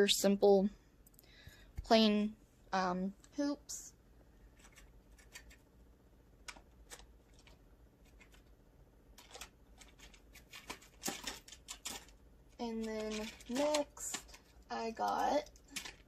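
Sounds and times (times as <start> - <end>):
packaging rustling: 9.2 - 12.2, 12.8 - 16.0.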